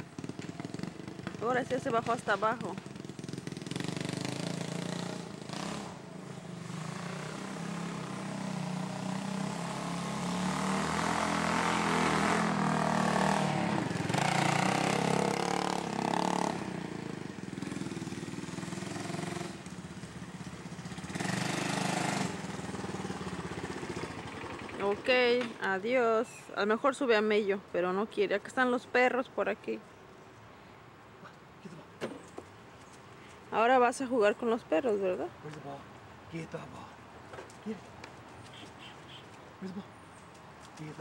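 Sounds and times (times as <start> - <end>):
quad bike engine running: 0.0 - 25.5.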